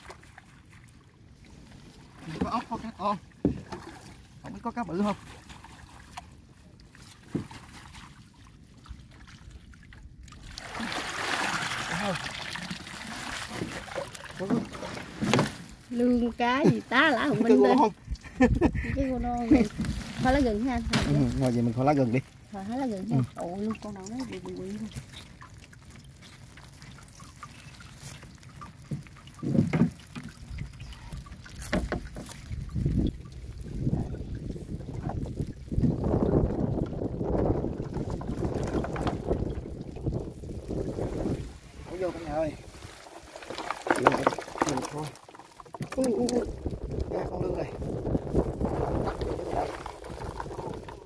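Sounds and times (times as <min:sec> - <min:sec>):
water sloshing: 0:00.0 - 0:51.0
water streaming off a net: 0:07.2 - 0:16.2, 0:19.6 - 0:51.0
mesh fish trap rustling: 0:19.6 - 0:33.6.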